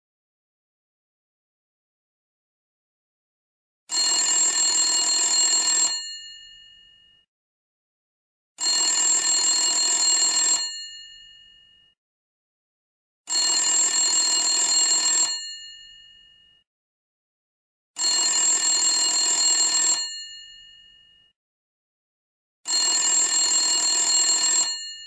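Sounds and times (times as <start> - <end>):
telephone bell ringing: 3.9 - 7.3, 8.6 - 12.0, 13.3 - 16.7, 18.0 - 21.4, 22.7 - 25.0.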